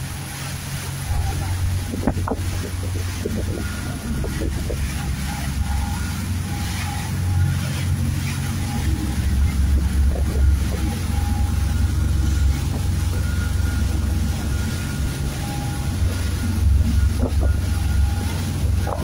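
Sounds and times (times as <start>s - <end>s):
churning water: 0.0s - 19.0s
motorboat engine drone: 0.0s - 19.0s
wind: 0.0s - 19.0s.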